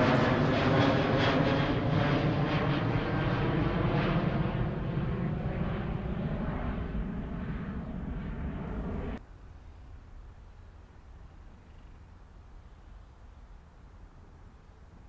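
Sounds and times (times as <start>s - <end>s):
jet airliner passing overhead: 0.0s - 9.2s
faint steady hum: 7.8s - 15.0s.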